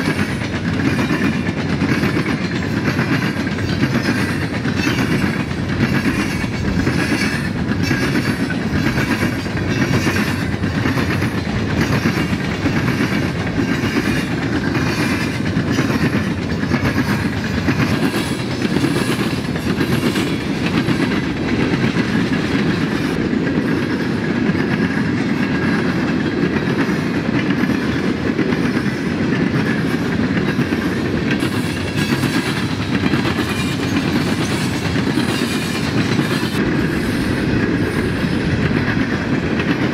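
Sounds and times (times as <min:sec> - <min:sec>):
freight train rolling past: 0:00.0 - 0:39.9
wheels clicking over rail joints: 0:00.0 - 0:39.9.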